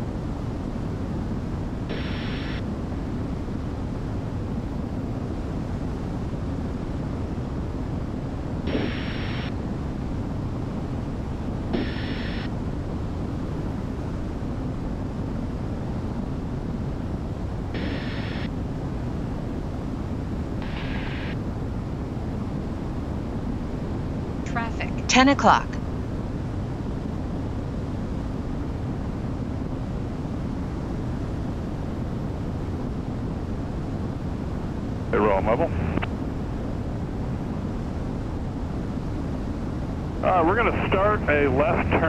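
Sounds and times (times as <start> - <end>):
aircraft engines and propellers droning: 0.0 - 42.0.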